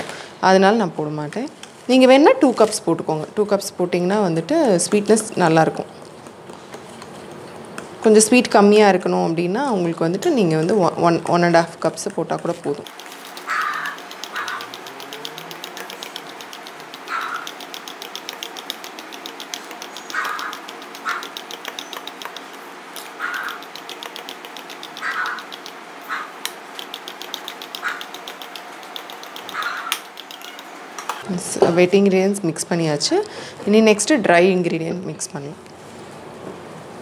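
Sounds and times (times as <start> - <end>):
utensil beating batter in glass bowl: 11.8 - 30.8.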